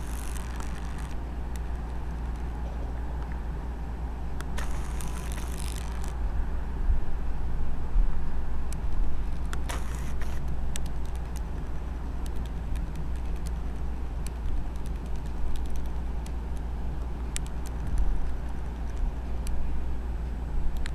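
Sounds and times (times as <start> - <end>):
low room rumble: 0.0 - 20.9
light clicks and ticks: 8.7 - 19.6.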